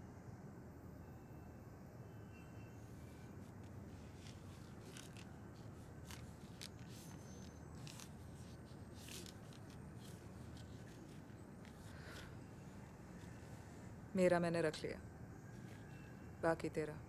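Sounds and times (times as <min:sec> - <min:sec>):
low room hum: 0:00.0 - 0:17.0
banknotes rustling: 0:02.9 - 0:13.9.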